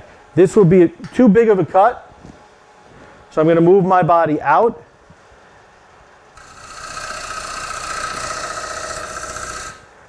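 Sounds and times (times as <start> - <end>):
lathe gouge cutting wood: 6.4 - 9.9.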